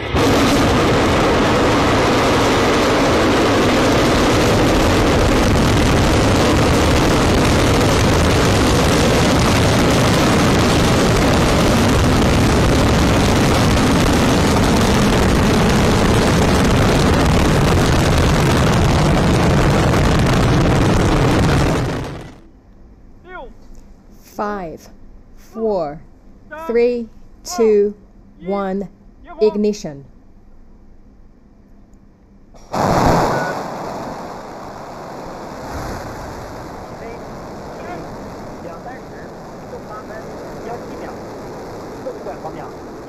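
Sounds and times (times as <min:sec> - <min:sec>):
rocket engine rumbling: 0:00.0 - 0:22.5, 0:32.6 - 0:43.0.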